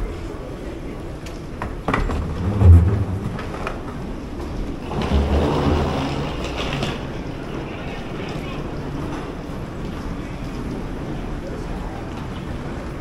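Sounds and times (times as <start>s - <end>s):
low thumps: 2.0s - 4.2s
steady hum: 2.1s - 4.2s.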